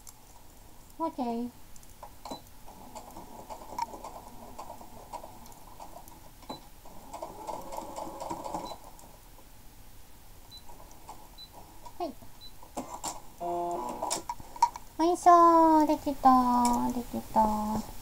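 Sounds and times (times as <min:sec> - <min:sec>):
sewing machine stitching: 0:02.3 - 0:09.0.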